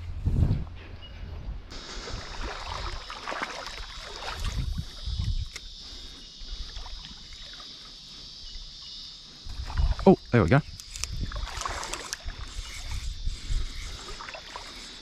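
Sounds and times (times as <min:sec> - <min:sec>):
high-pitched insect drone: 0:01.7 - 0:15.0
sharp click: 0:10.7 - 0:11.2.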